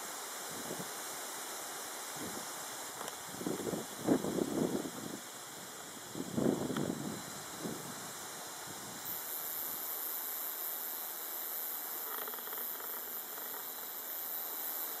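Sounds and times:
high-pitched insect buzzing: 0.0 - 15.0.

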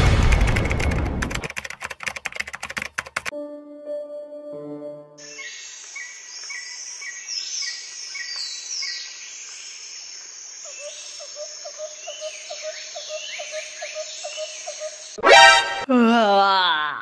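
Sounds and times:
insects buzzing: 4.6 - 15.2
birds chirping and whistling: 5.2 - 9.1, 10.8 - 15.2.

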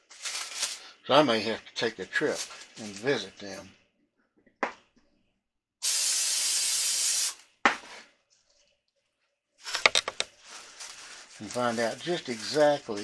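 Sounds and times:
aerosol spray hiss: 5.8 - 7.4.

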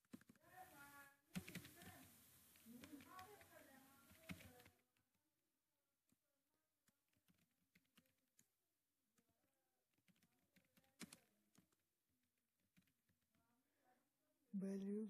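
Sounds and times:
faint keyboard typing: 0.0 - 5.2, 6.8 - 11.9, 12.6 - 13.5.

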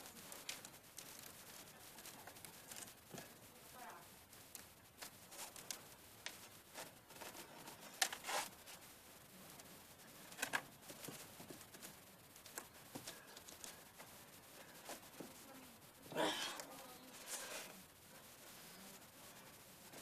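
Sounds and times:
scuffs and scrapes on stone wall: 6.7 - 8.6.

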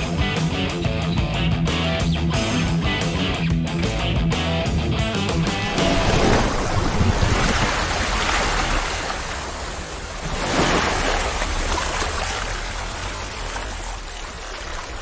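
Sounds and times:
water splashing and rushing: 5.2 - 15.0.

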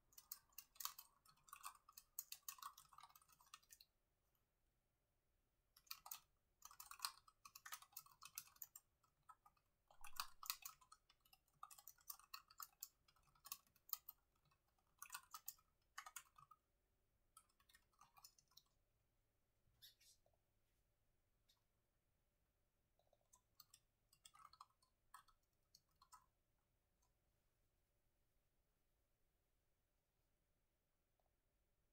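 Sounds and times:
typing on laptop keyboard: 0.0 - 3.9, 5.8 - 16.6, 17.3 - 18.7, 23.1 - 26.4.

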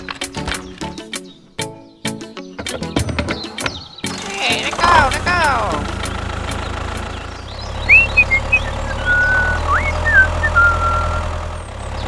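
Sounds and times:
tractor engine droning: 3.6 - 12.0
high whistle-like chirps: 7.8 - 11.3.

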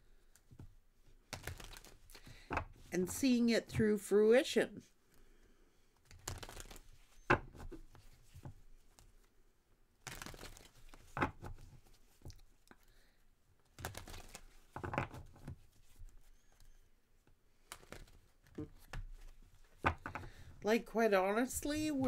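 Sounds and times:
cards shuffled by hand: 0.3 - 2.9, 6.0 - 9.3, 10.0 - 12.8, 13.6 - 16.8, 17.6 - 20.3.

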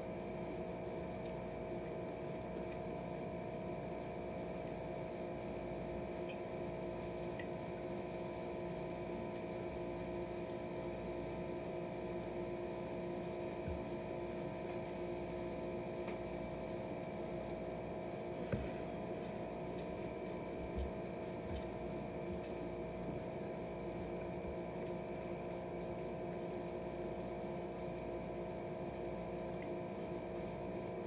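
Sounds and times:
steady electrical hum: 0.0 - 31.0
soft chewing: 28.4 - 30.0.

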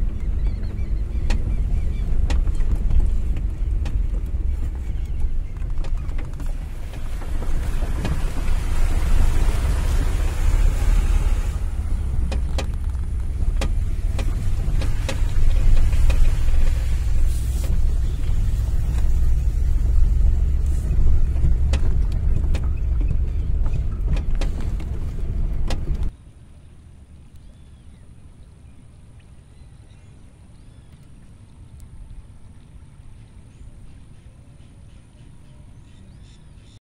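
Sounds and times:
vehicle engine and tyre rumble: 0.0 - 36.8
clicks and knocks from bumps: 0.4 - 9.5, 12.1 - 16.8, 21.0 - 26.1.

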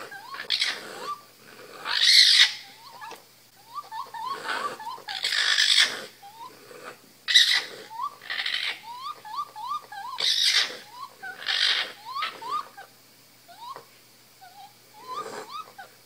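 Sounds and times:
raccoon kits squealing: 0.0 - 1.2, 1.8 - 6.6, 7.3 - 12.9, 13.5 - 15.9
raccoon kits chirping: 0.0 - 12.9, 13.5 - 15.9.

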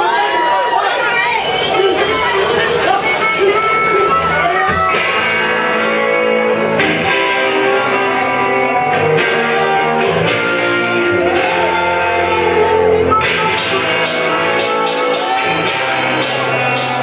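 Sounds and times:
electric guitars strumming: 1.7 - 17.0
harmonica bending notes: 1.9 - 17.0
drum kit: 9.0 - 17.0.

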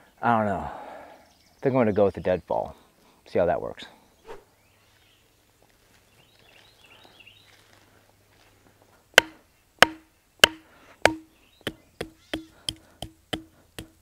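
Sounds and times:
hatchet striking wooden stake: 9.2 - 14.0.

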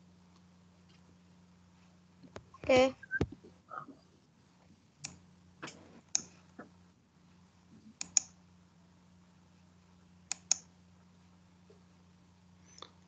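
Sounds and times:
faint low hum: 0.0 - 13.0
computer keyboard clicks: 8.0 - 8.3.

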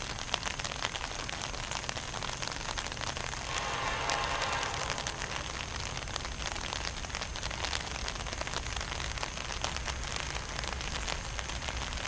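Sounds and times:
crackling microphone hiss: 0.0 - 12.0
distant freight train rumble: 3.4 - 6.6.

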